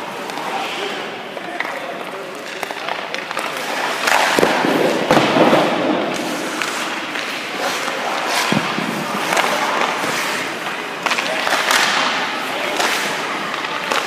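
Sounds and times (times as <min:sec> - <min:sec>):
skates scraping on ice: 0:00.0 - 0:14.0
sharp knocks of puck or sticks: 0:11.0 - 0:12.2.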